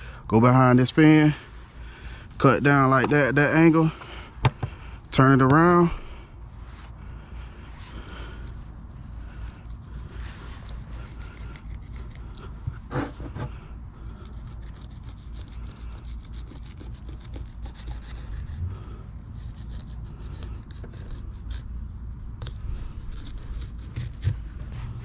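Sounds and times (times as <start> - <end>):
low rumble: 18.1 - 20.4.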